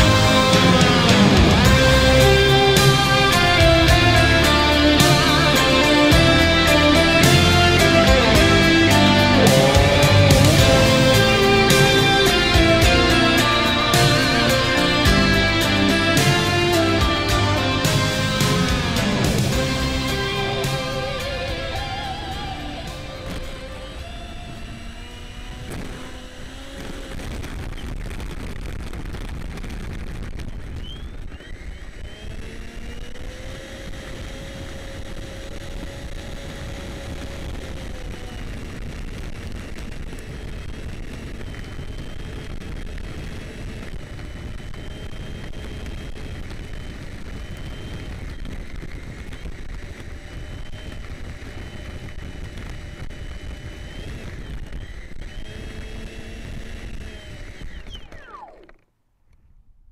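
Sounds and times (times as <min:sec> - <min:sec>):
electric ducted fan whining: 0:00.0 - 0:27.6, 0:31.0 - 0:58.8
wheels rolling over gravel: 0:23.2 - 0:58.8.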